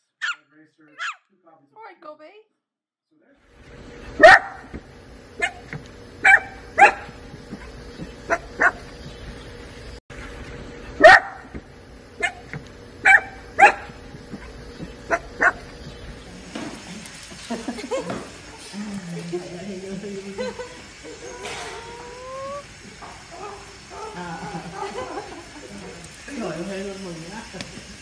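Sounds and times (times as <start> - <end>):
small dogs yapping: 1.0 - 1.2, 4.0 - 4.8, 5.4 - 8.9, 10.8 - 11.6, 12.2 - 15.9, 20.9 - 26.2.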